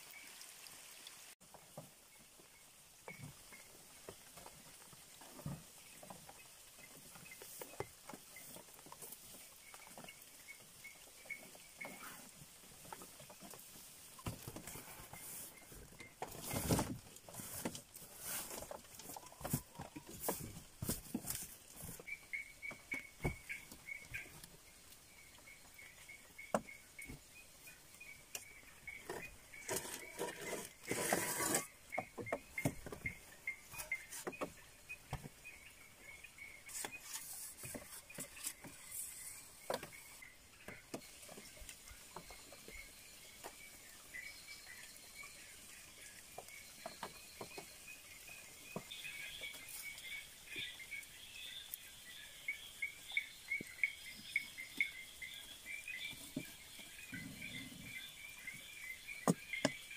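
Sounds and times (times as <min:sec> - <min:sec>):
rustling and handling noises: 0:11.9 - 0:25.0, 0:28.3 - 0:34.6, 0:36.6 - 0:40.2.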